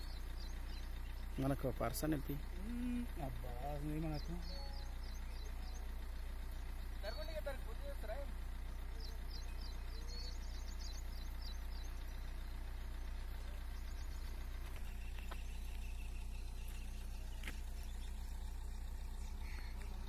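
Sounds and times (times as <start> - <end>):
steady low hum: 0.0 - 20.0
faint high chirps: 4.1 - 7.2.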